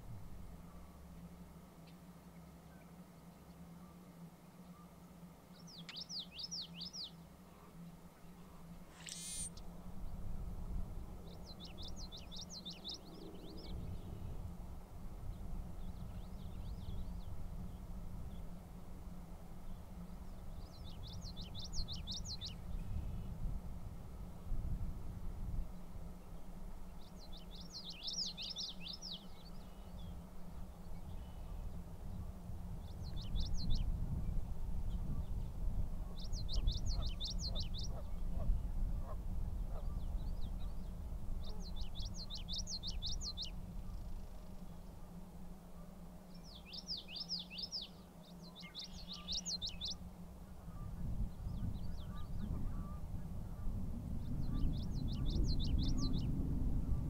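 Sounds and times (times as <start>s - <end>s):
songbird singing: 1.8s - 10.3s, 10.9s - 14.6s, 19.6s - 23.4s, 25.7s - 56.4s
low rumbling noise: 50.2s - 57.0s.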